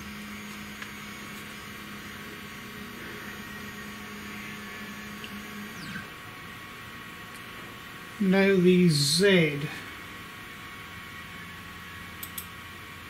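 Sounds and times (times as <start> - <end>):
stepper motor whining: 0.0 - 6.2.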